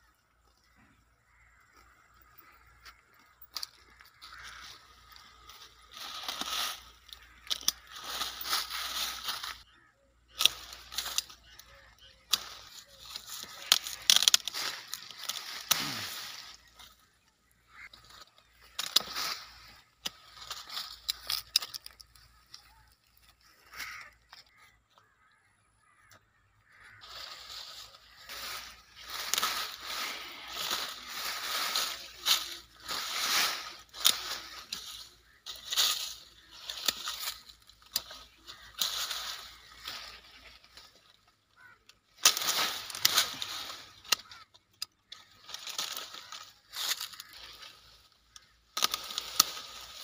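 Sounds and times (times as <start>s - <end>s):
rustle of leaves and twigs: 0.0s - 50.0s
pruning shears snipping branches: 12.3s - 16.8s, 28.2s - 41.2s, 41.8s - 50.0s.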